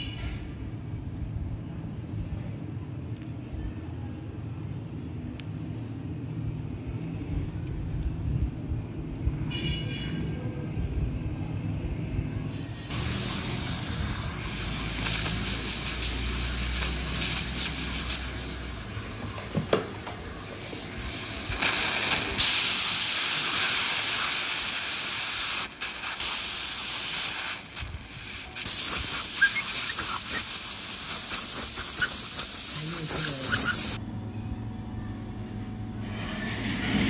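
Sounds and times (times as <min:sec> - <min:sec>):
dental suction and spray hissing: 0:12.9 - 0:18.9, 0:20.6 - 0:34.0.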